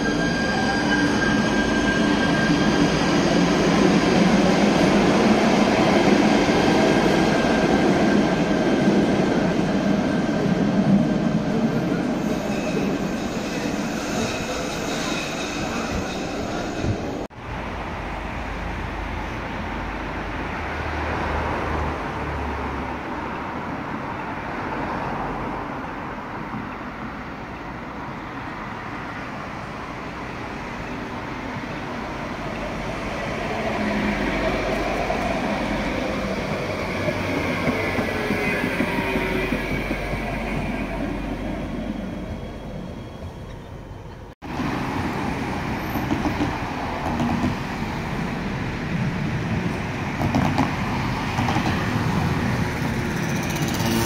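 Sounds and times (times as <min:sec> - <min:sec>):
high wheel squeal: 0:00.0 - 0:04.3, 0:11.8 - 0:17.3, 0:52.8 - 0:54.0
street traffic noise: 0:00.0 - 0:54.0
train rumble in tunnel: 0:00.0 - 0:54.0
tram approaching: 0:00.0 - 0:54.0.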